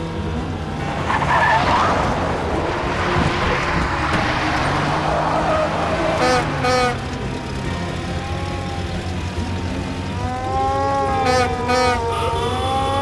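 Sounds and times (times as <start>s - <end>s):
cartoon engine rumble: 0.0s - 13.0s
siren wail: 10.2s - 13.0s.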